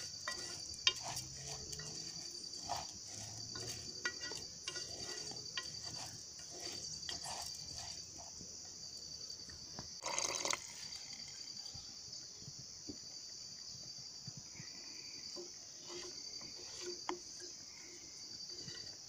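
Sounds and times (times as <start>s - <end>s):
wooden spoon scraping metal pot: 0.0s - 9.0s, 15.3s - 19.0s
insects chirring: 0.0s - 19.0s.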